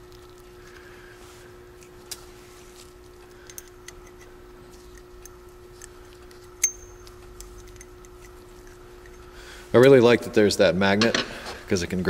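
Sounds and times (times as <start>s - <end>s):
faint steady hum: 0.0s - 12.0s
sharp ringing click: 6.6s - 7.9s.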